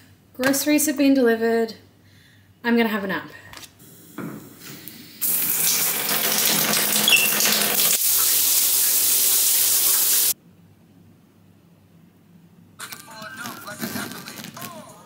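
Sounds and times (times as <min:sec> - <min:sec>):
shower spraying against tiles: 0:05.2 - 0:10.4
water running from a tap: 0:05.2 - 0:10.4
brief high squeak: 0:07.0 - 0:07.5.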